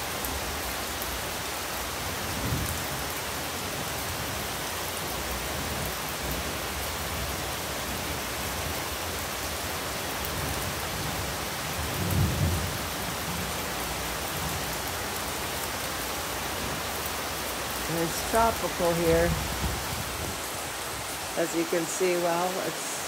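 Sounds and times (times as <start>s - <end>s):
heavy rain pouring: 0.0s - 23.0s
low rumble of thunder: 2.3s - 3.0s, 10.3s - 14.8s, 19.3s - 20.4s.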